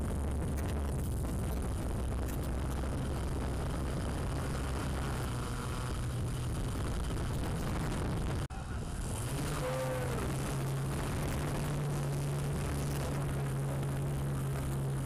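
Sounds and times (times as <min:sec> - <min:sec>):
low motor hum: 0:00.0 - 0:15.0.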